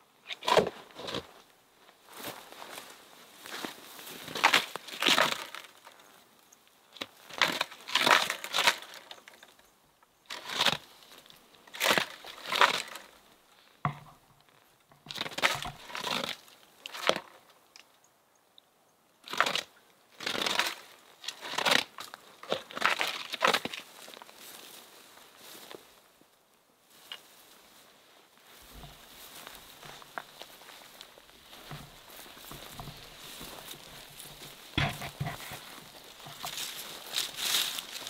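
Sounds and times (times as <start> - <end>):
stick scraping tree bark: 0.3 - 1.4, 7.0 - 9.6, 10.3 - 13.2, 15.0 - 17.4, 19.3 - 24.2, 28.7 - 38.0.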